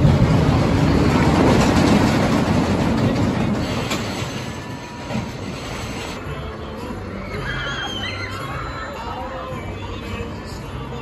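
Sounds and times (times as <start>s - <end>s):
roller coaster rumbling on wooden track: 0.0s - 6.2s.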